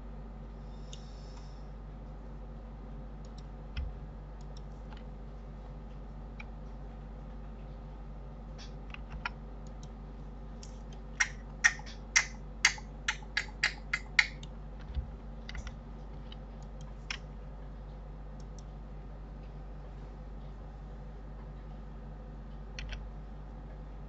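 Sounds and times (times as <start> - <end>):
steady low hum: 0.0 - 24.0
keyboard and mouse clicks: 3.2 - 5.1, 8.6 - 10.0, 10.6 - 17.2, 22.8 - 23.0.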